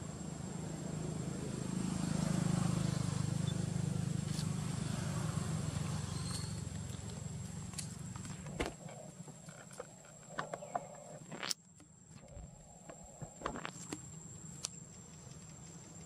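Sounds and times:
high insect drone: 0:00.0 - 0:16.0
monkeys tapping and scuffing on rock: 0:06.8 - 0:16.0.

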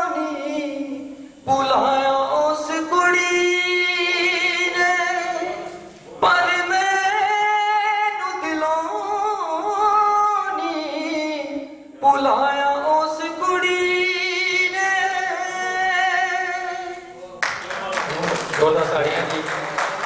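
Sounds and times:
man singing unaccompanied: 0:00.0 - 0:17.3.

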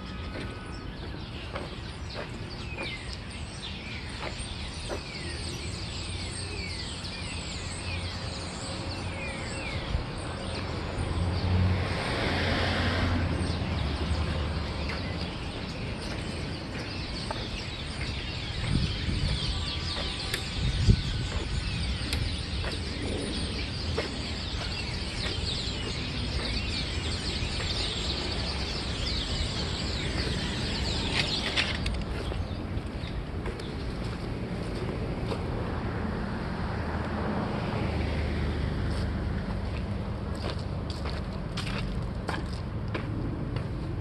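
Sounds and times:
flock of birds chirping: 0:00.0 - 0:36.5, 0:37.3 - 0:44.0
vehicle passing: 0:09.7 - 0:44.0.

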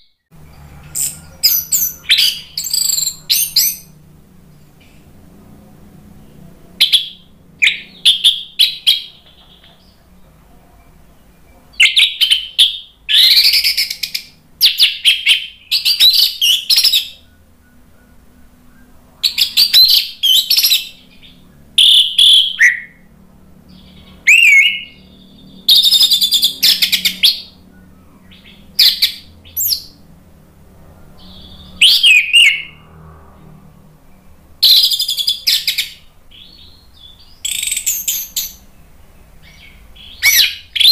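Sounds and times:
thrush singing: 0:00.3 - 0:40.9
scratchy bird chatter: 0:00.5 - 0:05.1.

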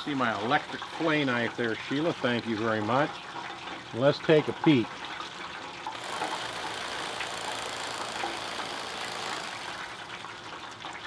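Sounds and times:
electric knife sawing: 0:06.0 - 0:10.3.

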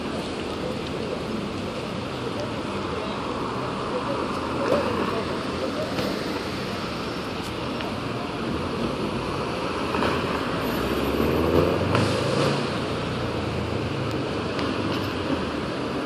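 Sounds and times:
cars passing: 0:00.0 - 0:16.0.

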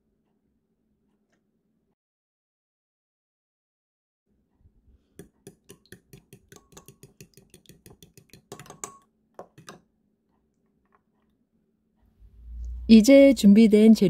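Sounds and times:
spoon clinking against glass: 0:05.6 - 0:09.0.

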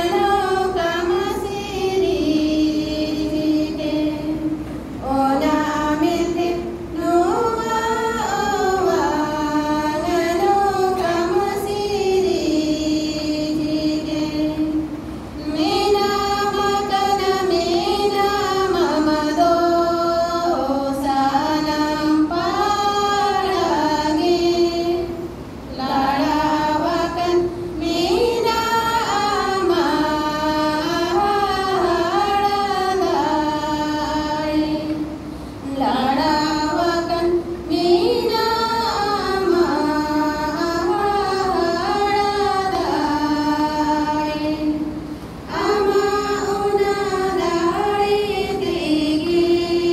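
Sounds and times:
women singing over loudspeakers: 0:00.0 - 0:49.9.

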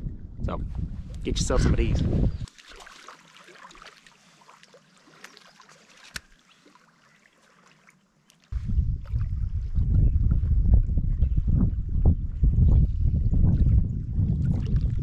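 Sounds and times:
wind buffeting microphone: 0:00.0 - 0:02.5, 0:08.5 - 0:15.0.

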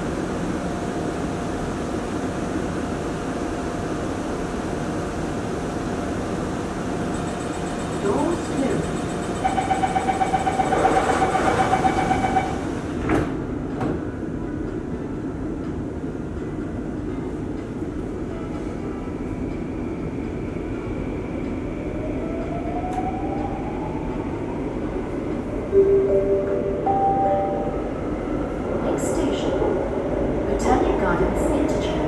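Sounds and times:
train carriage rumble: 0:00.0 - 0:32.0
steady tone: 0:25.8 - 0:28.4.

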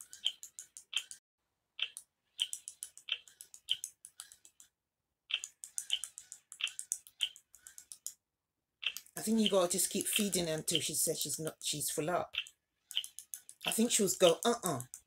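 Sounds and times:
toy doll mouth clicking: 0:01.8 - 0:04.7, 0:05.3 - 0:08.2, 0:08.8 - 0:10.9, 0:12.3 - 0:15.0.

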